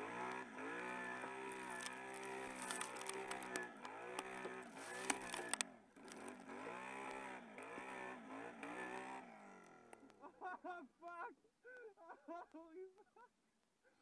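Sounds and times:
atv engine revving: 0.0s - 10.2s.

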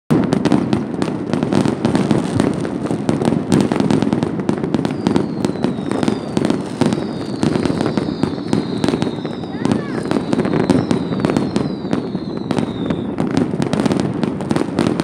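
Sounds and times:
distant fireworks bangs and crackling: 0.1s - 15.0s
firecracker pops: 0.1s - 15.0s
firework whistles gliding down: 3.5s - 14.6s.

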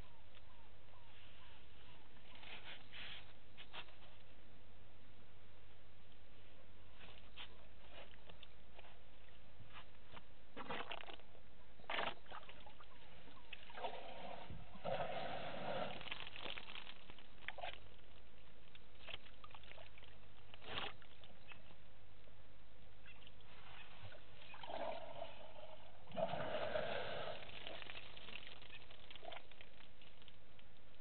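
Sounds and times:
water sloshing and splashing: 11.9s - 21.8s, 23.2s - 30.4s.

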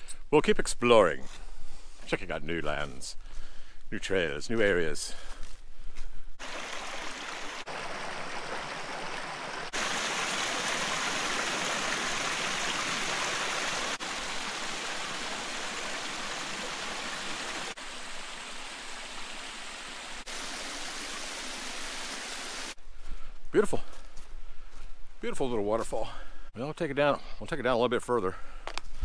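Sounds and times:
waterfall splashing over rocks: 6.4s - 22.8s.

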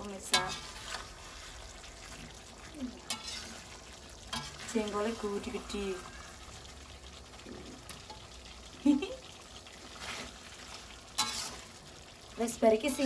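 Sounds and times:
metal spatula scraping wok: 0.0s - 2.3s, 3.0s - 5.8s, 9.8s - 11.8s
sauce sizzling: 0.0s - 13.0s.

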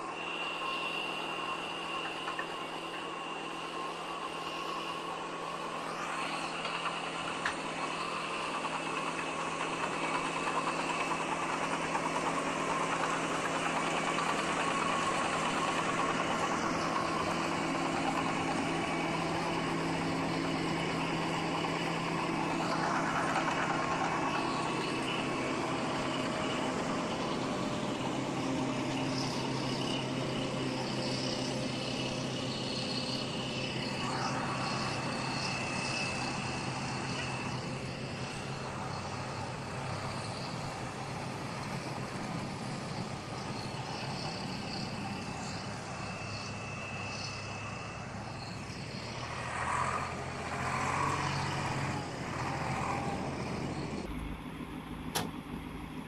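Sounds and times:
heavy diesel engines droning: 0.0s - 56.0s.

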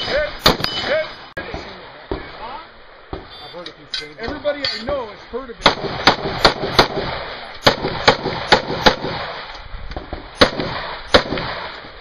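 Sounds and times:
rifle shots with echo: 0.0s - 1.7s, 5.6s - 12.0s.

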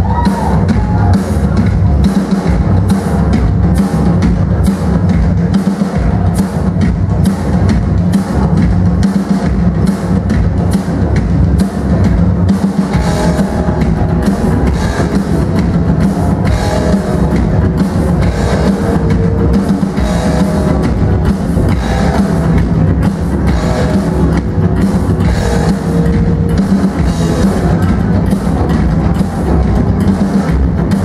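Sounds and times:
drum kit: 0.0s - 31.0s
upright double bass: 13.0s - 31.0s.

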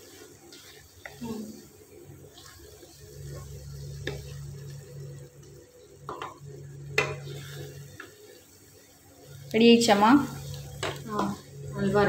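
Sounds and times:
wooden spatula stirring thick mixture: 0.0s - 4.8s
steady low hum: 0.0s - 12.0s.

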